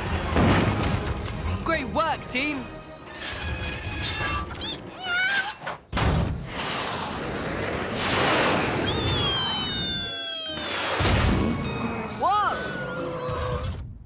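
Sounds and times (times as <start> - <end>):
falling whistling tones: 8.4 - 11.0.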